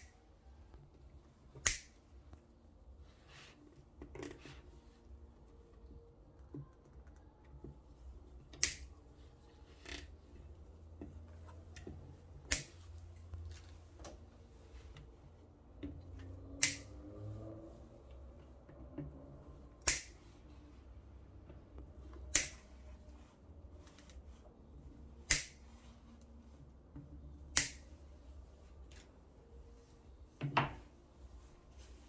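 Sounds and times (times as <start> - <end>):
side cutters snipping: 1.6 - 1.9, 8.6 - 8.8, 16.6 - 17.0, 19.8 - 20.2, 22.3 - 22.6, 25.3 - 25.6, 27.6 - 27.8.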